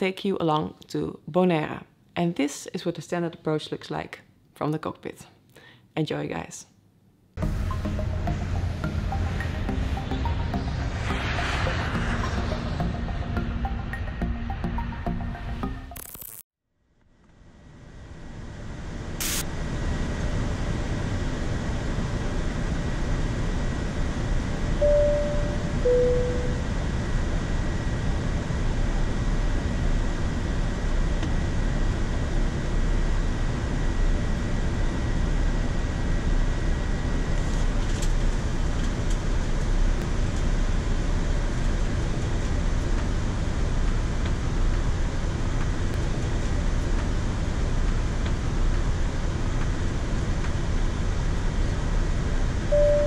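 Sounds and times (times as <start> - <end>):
air-conditioning airflow rush: 7.4 - 13.8, 17.5 - 53.0
rushing airflow in cockpit: 7.4 - 14.9
brief hiss: 19.2 - 19.4
faint high steady tone: 24.8 - 26.8, 52.7 - 53.0.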